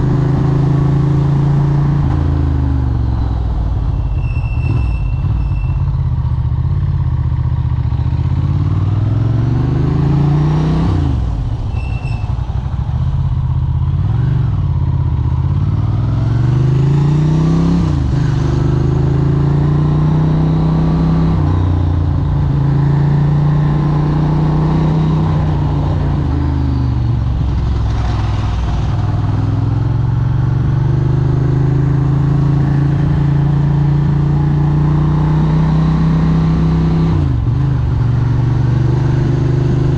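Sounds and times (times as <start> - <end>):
moped engine accelerating: 12.8 - 39.9.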